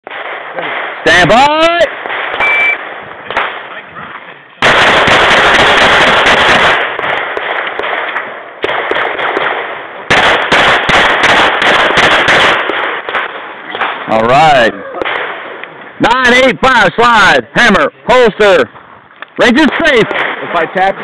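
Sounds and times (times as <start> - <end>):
pistol shots: 0.0 - 3.8, 4.6 - 14.2, 15.0 - 15.6, 19.6 - 20.9.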